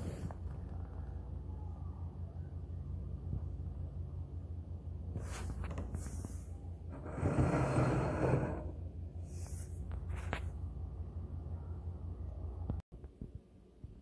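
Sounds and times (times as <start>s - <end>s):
steady low hum: 0.0s - 14.0s
ceramic burner scraping on table: 6.9s - 8.8s.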